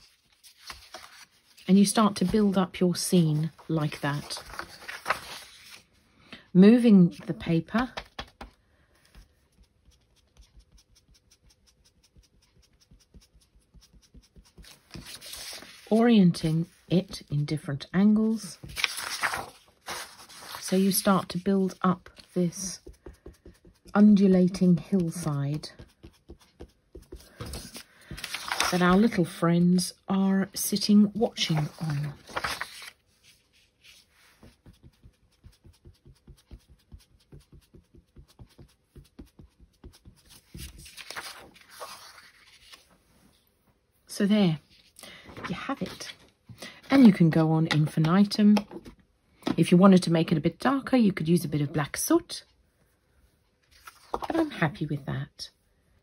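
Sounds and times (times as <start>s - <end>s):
foam tool patting paper: 7.8s - 15.9s, 18.6s - 29.2s, 33.8s - 41.9s
blending tool tapping on paper: 22.8s - 24.0s.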